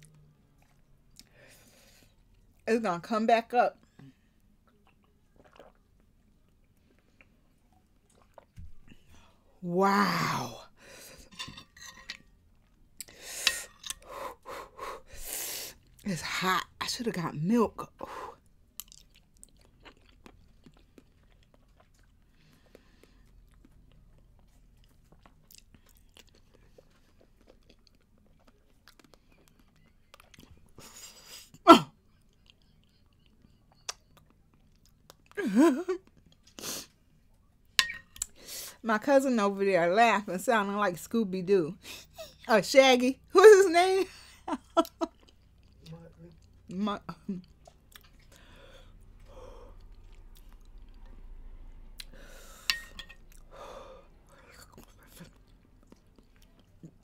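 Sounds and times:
mouth and eating clicks: 33.2s - 35.3s
metal spoon clink: 37.8s - 38.2s, 52.7s - 53.2s
person breathing heavily and sighing: 48.3s - 49.8s, 53.5s - 54.6s.

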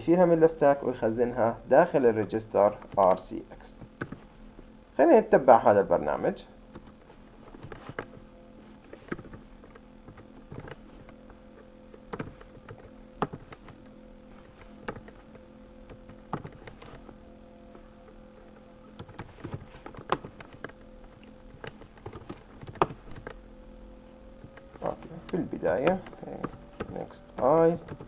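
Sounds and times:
faint steady hum: 0.0s - 28.0s
keyboard typing: 2.0s - 4.2s, 8.8s - 23.4s, 24.4s - 28.0s.

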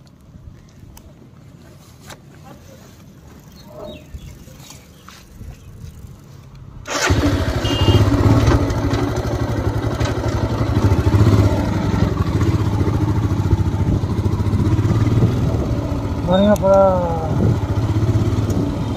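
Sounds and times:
motorcycle engine starting and idling: 5.8s - 18.9s.

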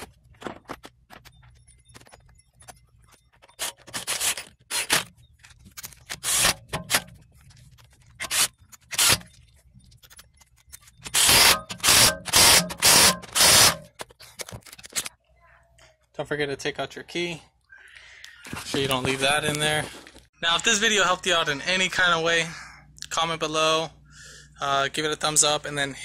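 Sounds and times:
hand tool scraping wheel bolts: 8.0s - 9.4s.

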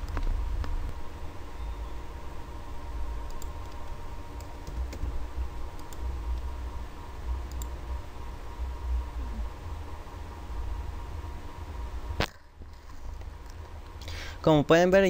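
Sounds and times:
low rumble and hum: 0.0s - 15.0s
keyboard and mouse clicks: 3.2s - 5.1s, 5.8s - 6.5s, 7.5s - 7.7s.

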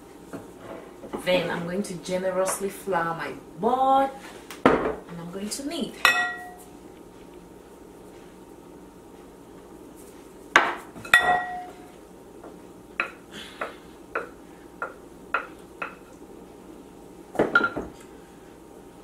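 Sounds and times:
dishes and utensils clinking: 6.0s - 6.6s, 10.6s - 11.9s, 17.4s - 17.9s
dishes clattering: 10.6s - 11.8s, 17.4s - 18.0s.

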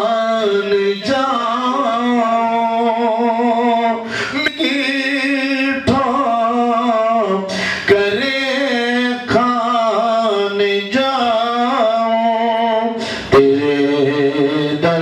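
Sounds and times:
man singing solo: 0.0s - 15.0s.

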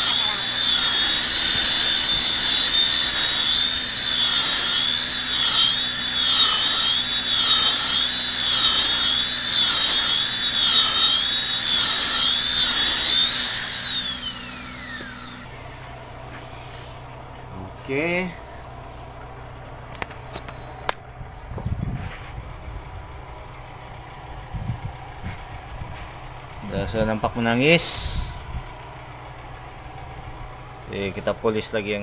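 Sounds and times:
electric car polisher whining: 0.0s - 16.9s.

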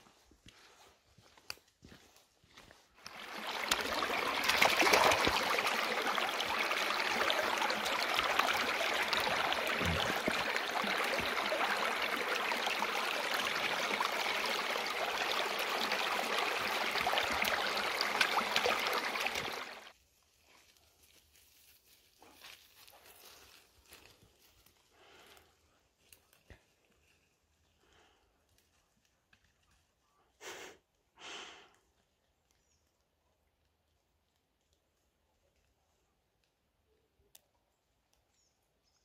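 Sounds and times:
stream babbling over rocks: 3.0s - 19.9s.

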